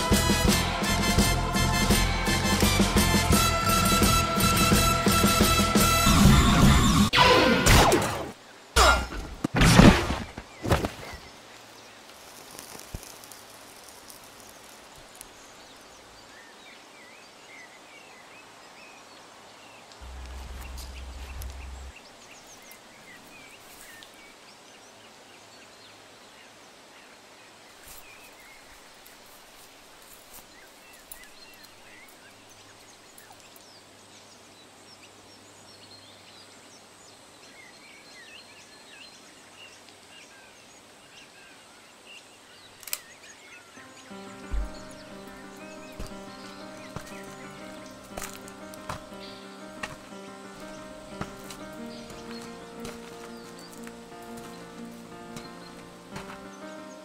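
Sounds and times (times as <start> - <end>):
small birds chirping: 10.2 - 57.0
steady hiss: 11.2 - 17.0
low rumble: 20.0 - 22.0.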